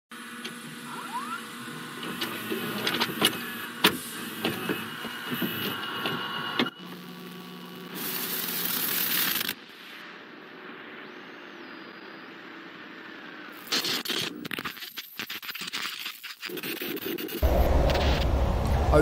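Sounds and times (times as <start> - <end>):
tv static hiss: 6.2 - 19.0
low hum: 17.4 - 19.0.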